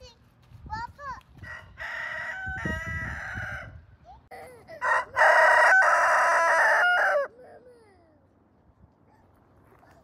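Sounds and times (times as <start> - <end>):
rooster crowing: 1.5 - 3.8, 4.8 - 7.3.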